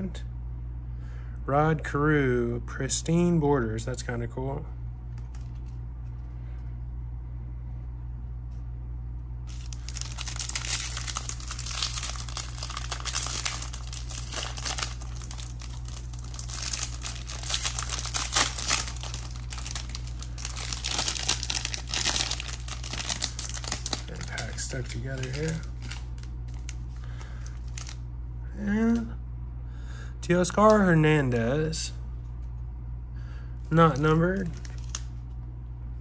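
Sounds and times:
foil wrapper tearing and crinkling: 9.5 - 28.0, 33.8 - 35.1.

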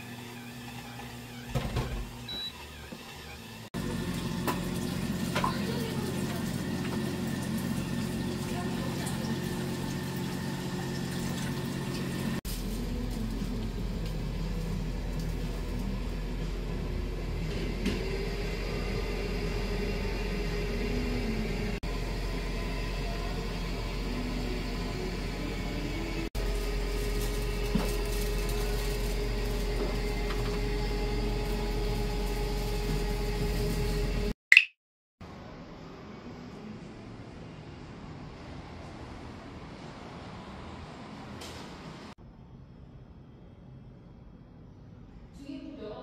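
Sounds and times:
machinery humming: 0.0 - 34.3.

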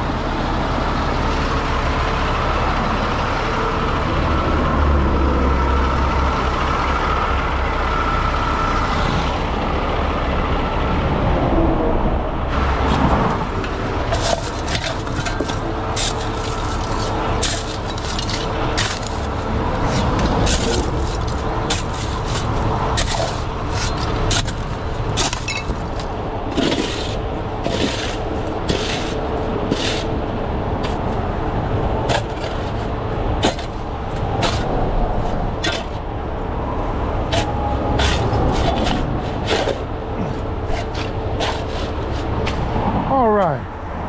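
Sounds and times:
diesel truck engine whining: 0.0 - 44.0
metal clanks and scrapes: 12.8 - 30.2, 32.0 - 36.1, 37.2 - 42.7.

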